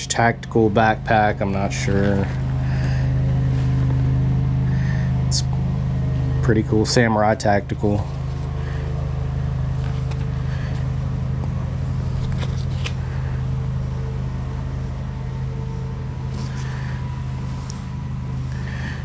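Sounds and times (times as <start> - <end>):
low mechanical hum: 0.0 - 19.0
backpack rustling and clicking: 9.8 - 10.9, 12.1 - 13.0.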